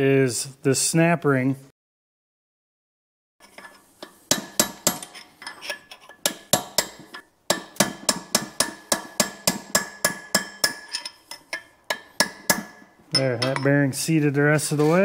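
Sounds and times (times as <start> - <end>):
hammer striking metal: 4.0 - 5.2, 6.2 - 13.7.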